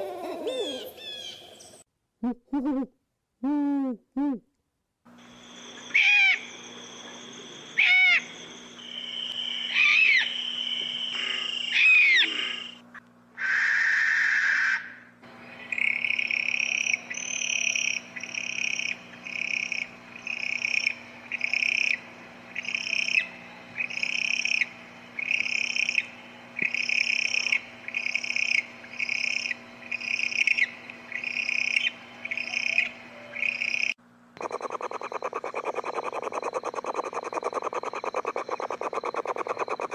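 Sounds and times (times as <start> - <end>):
owl screeching whistles: 5.8 - 6.5, 7.8 - 8.3, 9.6 - 12.8, 13.4 - 15.0
short owl calls: 5.8 - 6.5, 7.8 - 8.3, 9.6 - 12.8, 13.4 - 15.1
owl hissing: 9.3 - 12.8, 13.4 - 15.0, 20.6 - 39.9.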